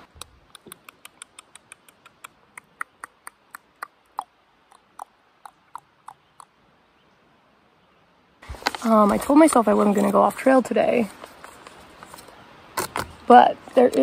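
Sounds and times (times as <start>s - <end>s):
animal chip calls: 0.6s - 6.6s.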